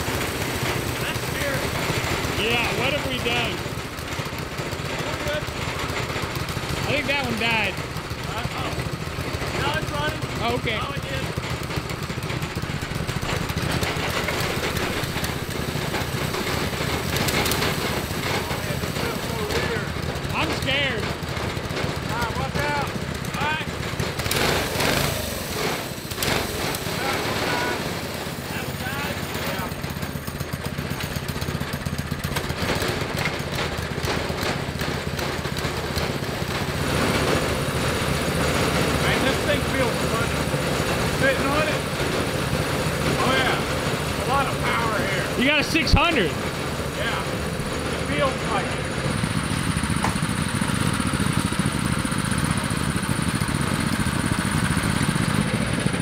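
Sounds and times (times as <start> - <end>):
small engines running steadily: 0.0 - 56.0.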